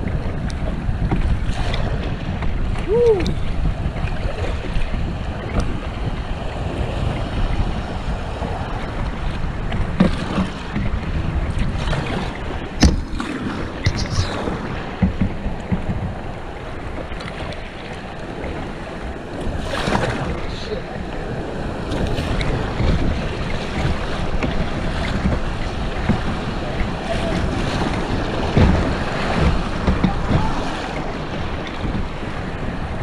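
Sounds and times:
wind buffeting microphone: 0:00.0 - 0:33.0
splashes and knocks: 0:01.0 - 0:06.3, 0:08.3 - 0:16.2, 0:21.9 - 0:32.4
river water rushing: 0:10.1 - 0:33.0.

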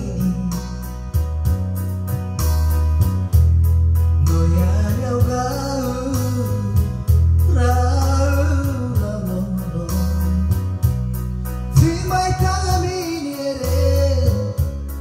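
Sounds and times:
man singing into a microphone: 0:00.0 - 0:01.3, 0:04.2 - 0:11.0, 0:11.6 - 0:15.0
steady beat: 0:00.0 - 0:07.9
deep bass notes: 0:00.0 - 0:15.0
electronic keyboard accompaniment: 0:00.0 - 0:15.0.

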